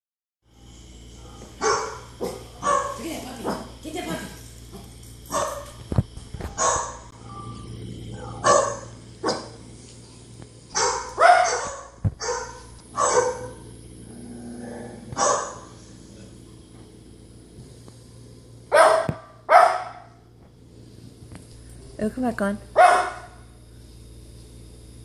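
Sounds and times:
dog barking: 1.3s - 3.7s, 5.3s - 5.7s, 6.5s - 7.1s, 8.2s - 9.6s, 10.7s - 13.6s, 15.2s - 15.6s, 18.7s - 20.1s, 22.8s - 23.4s.

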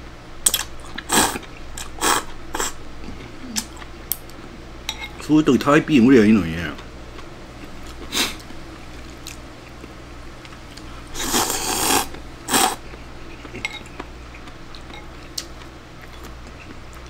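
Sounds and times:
person slurping noodles: 0.5s - 2.8s, 11.1s - 13.6s.

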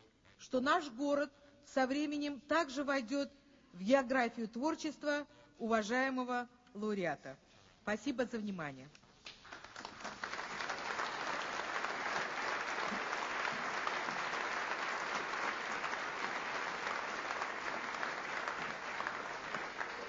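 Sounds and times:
audience applause: 9.4s - 20.0s.

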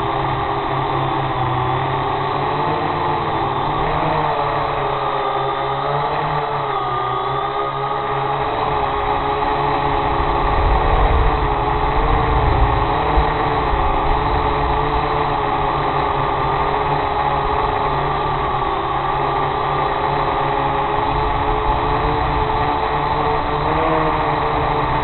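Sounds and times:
drone motors buzzing: 0.0s - 25.0s
wind rumble on microphone: 8.6s - 18.6s.

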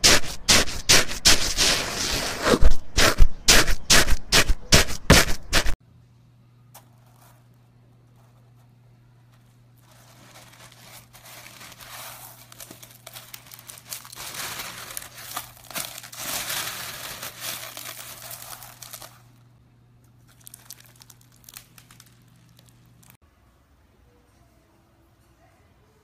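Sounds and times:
crunchy slime crackling: 9.8s - 19.4s, 20.2s - 23.2s.

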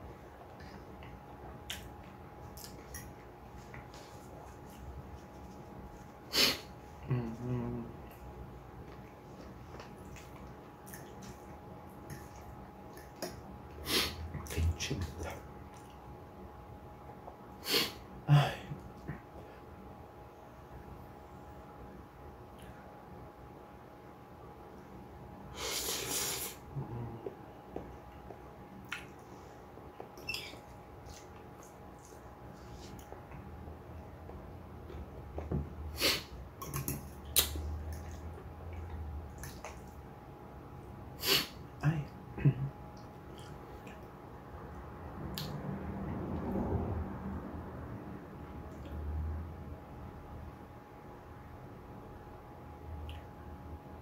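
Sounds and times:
eating mouth noises: 30.0s - 33.3s, 34.9s - 39.9s.

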